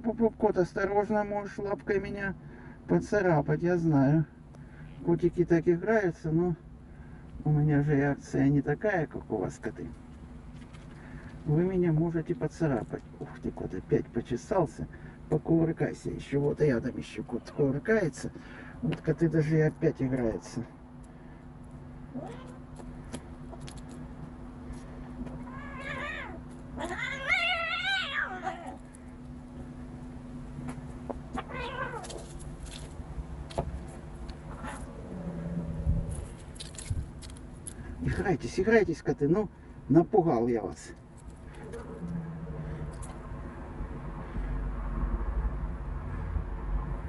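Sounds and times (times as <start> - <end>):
cat yowling: 22.1 - 22.6, 25.4 - 28.8, 31.4 - 32.3
cats play-fighting: 22.1 - 29.5, 30.6 - 32.9, 33.5 - 37.8, 41.2 - 43.4
low uneven rumble: 28.3 - 39.8, 40.8 - 47.0.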